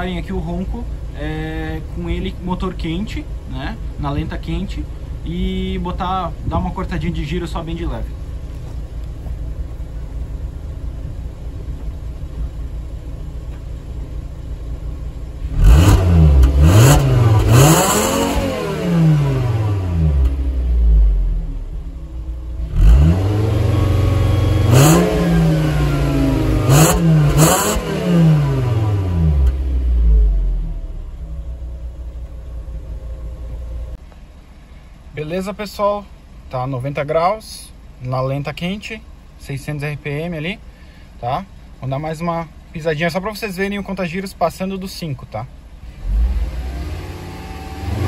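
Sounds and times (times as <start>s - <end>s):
car engine idling and revving: 0.0s - 48.0s.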